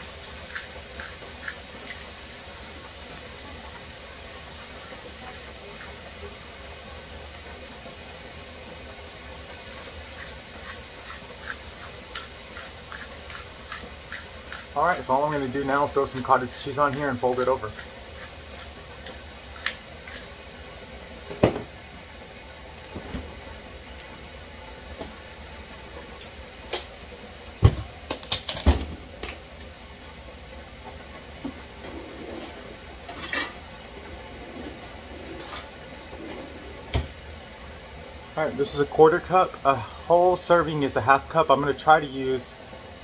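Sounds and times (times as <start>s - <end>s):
spice grinder crunching: 0.0s - 2.5s, 10.0s - 20.6s
steady hiss: 0.0s - 43.0s.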